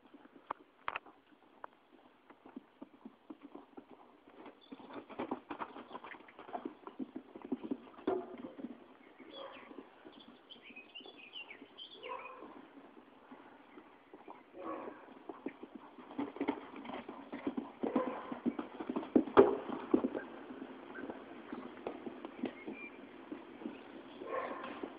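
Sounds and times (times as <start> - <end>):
horse hoofbeats cantering: 0.0 - 24.9
birds chirping: 4.5 - 16.2, 19.9 - 24.9.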